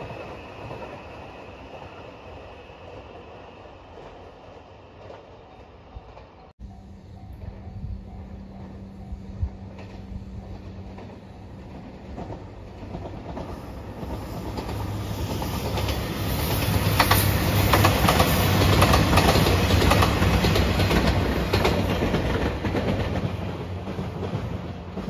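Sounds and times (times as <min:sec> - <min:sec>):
diesel train engine drone: 0:00.0 - 0:25.0
wheels clicking over rail joints: 0:07.2 - 0:25.0.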